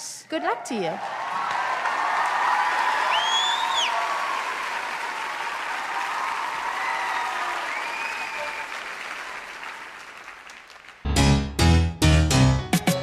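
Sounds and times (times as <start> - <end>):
people cheering: 0.3 - 11.1
audience applauding: 0.4 - 11.1.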